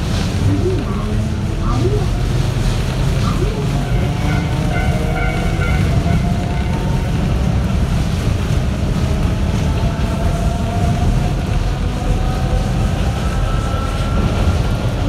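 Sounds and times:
train wheels rumbling: 0:00.0 - 0:15.0.

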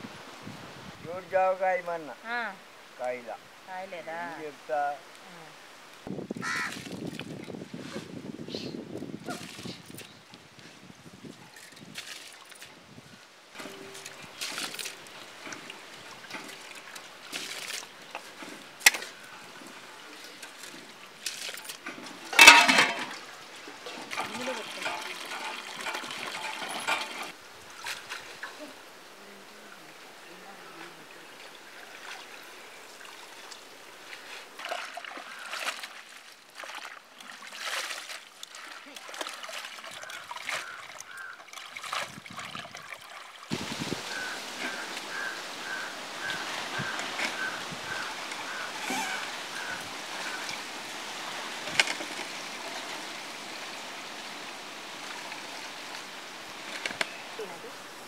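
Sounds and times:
leaves splashing in water: 0:06.4 - 0:07.7, 0:09.1 - 0:10.5, 0:11.2 - 0:28.8, 0:30.7 - 0:58.0
water pouring into steel pot: 0:22.3 - 0:27.4.

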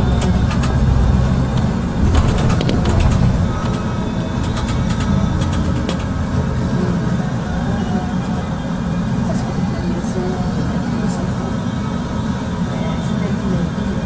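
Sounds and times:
bus engine and road rumble: 0:00.0 - 0:14.0
sharp rattling clicks: 0:00.2 - 0:06.4.

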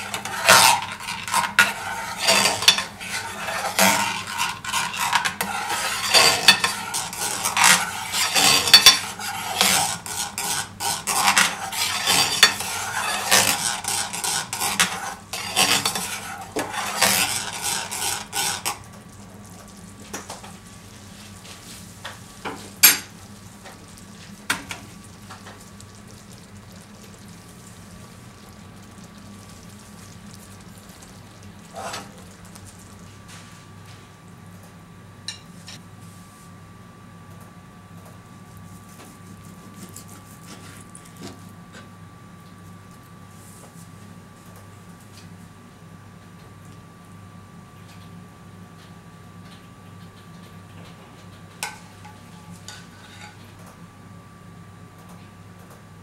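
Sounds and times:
metal spoon scraping a pan: 0:00.0 - 0:18.9, 0:28.4 - 0:32.6, 0:51.6 - 0:53.4
sauce sizzling: 0:00.0 - 0:33.7.

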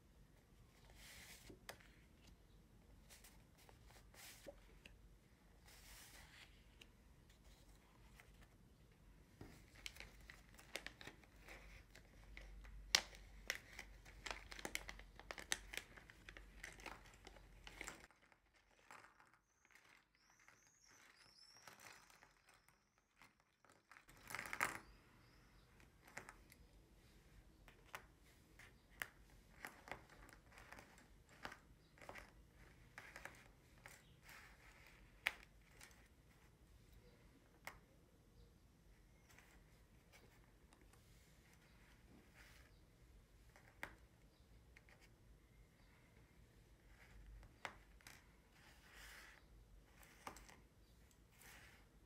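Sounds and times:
paper crinkling: 0:09.4 - 0:24.8
pieces clicking on paper: 0:09.6 - 0:26.6.

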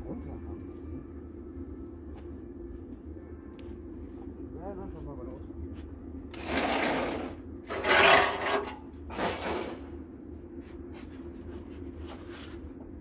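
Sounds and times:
steady low hum: 0:00.0 - 0:13.0
rough scraping: 0:06.4 - 0:09.8.

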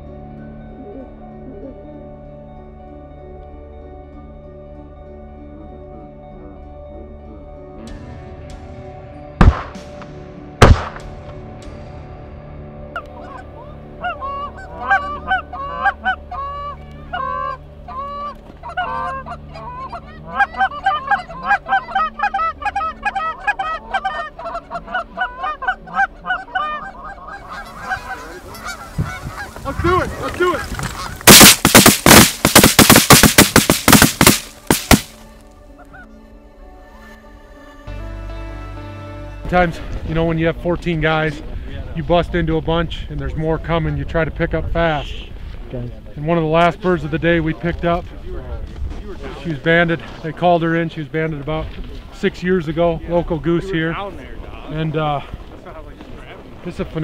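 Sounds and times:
shotgun blasts: 0:09.4 - 0:11.2, 0:31.2 - 0:35.2
geese honking: 0:13.0 - 0:35.1.

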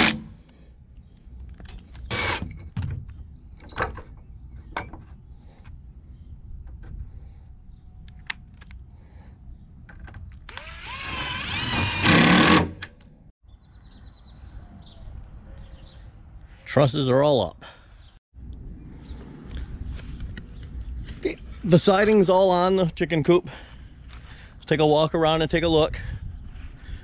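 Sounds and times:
power drill driving a screw: 0:02.1 - 0:02.4, 0:10.5 - 0:12.9.

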